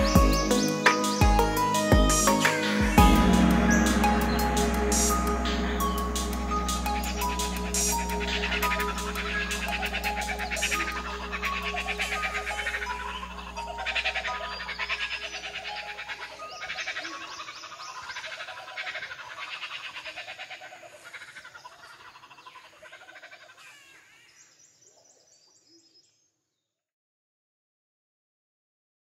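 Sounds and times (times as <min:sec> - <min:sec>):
low music drone: 0:00.0 - 0:16.8
rapid high trills: 0:00.0 - 0:17.2
low repeating animal call: 0:01.4 - 0:23.8.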